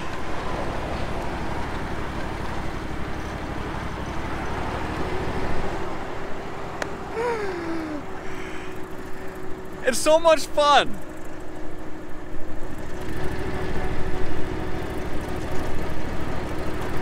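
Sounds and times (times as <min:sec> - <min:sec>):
riding mower engine running: 0:00.0 - 0:17.0
person laughing: 0:07.2 - 0:08.6.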